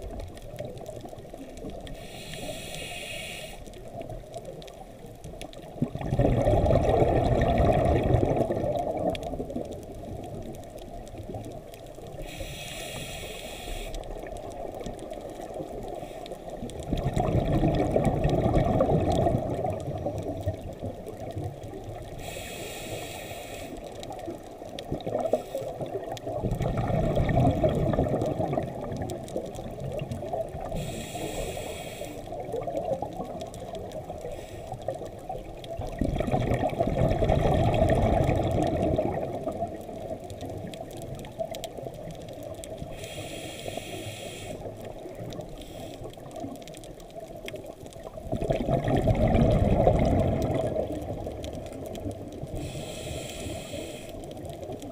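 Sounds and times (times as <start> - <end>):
underwater wash: 0.0 - 54.9
diver breathing through regulator: 1.9 - 3.7, 12.2 - 14.1, 22.2 - 23.9, 30.7 - 32.3, 42.9 - 44.8, 52.5 - 54.4
rush of bubbles: 5.5 - 12.3, 14.1 - 22.3, 24.1 - 30.9, 32.3 - 43.0, 44.6 - 52.8.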